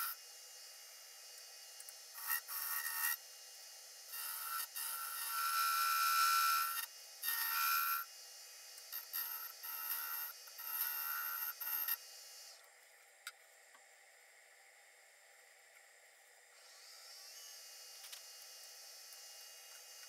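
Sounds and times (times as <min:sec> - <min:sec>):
lathe gouge hissing on wood: 0:00.0 - 0:12.5.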